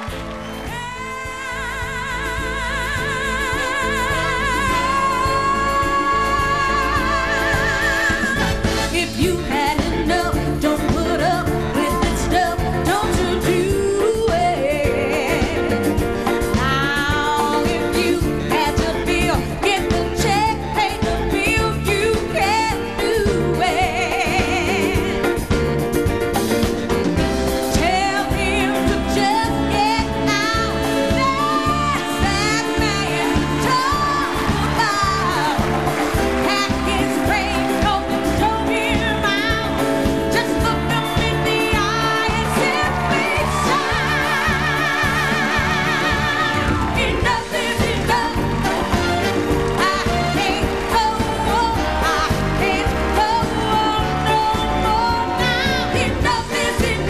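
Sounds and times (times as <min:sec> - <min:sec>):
samba dance music: 0:00.0 - 0:57.0
lead singer singing: 0:27.7 - 0:57.0.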